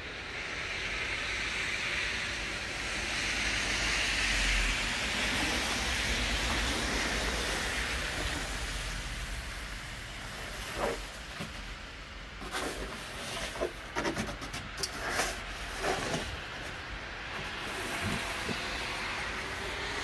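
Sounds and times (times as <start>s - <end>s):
traffic hiss on slushy road: 0.0s - 20.0s
snow shovel scraping: 10.1s - 11.7s, 12.4s - 20.0s.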